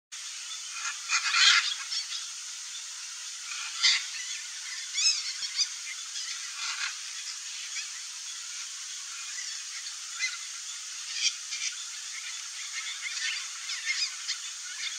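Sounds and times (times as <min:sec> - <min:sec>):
steady hiss: 0:00.1 - 0:14.9
macaws squawking: 0:00.7 - 0:02.3.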